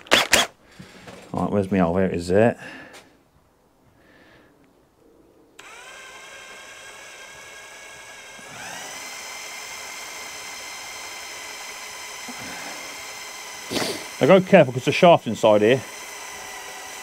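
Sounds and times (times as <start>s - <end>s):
electric drill whining: 0.0s - 1.2s, 5.6s - 17.0s.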